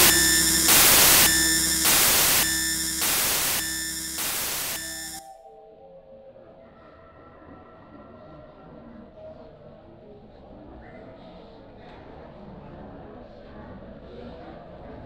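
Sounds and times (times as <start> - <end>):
static hiss: 0.0 - 5.2
steady pulsing tones: 0.0 - 5.2.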